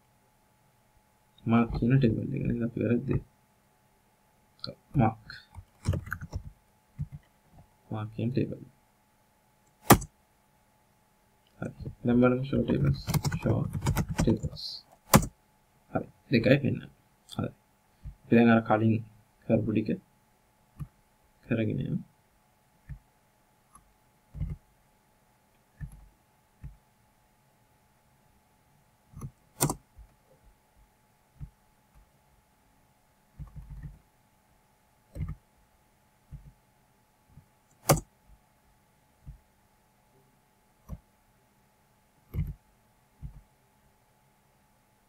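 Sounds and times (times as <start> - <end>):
faint steady hum: 0.0 - 45.0
computer mouse clicks: 23.7 - 24.6, 25.8 - 26.8, 29.2 - 29.8, 33.4 - 34.0, 35.1 - 35.4, 37.7 - 38.1, 42.3 - 42.6.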